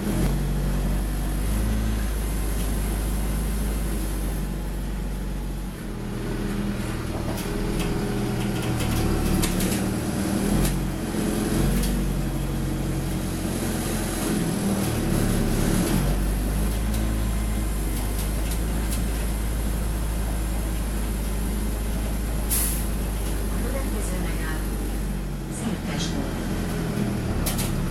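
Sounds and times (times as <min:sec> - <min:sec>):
bus engine under load: 0:00.0 - 0:27.9
interior rattles and clicks: 0:07.0 - 0:11.0, 0:16.2 - 0:24.5, 0:25.5 - 0:27.9.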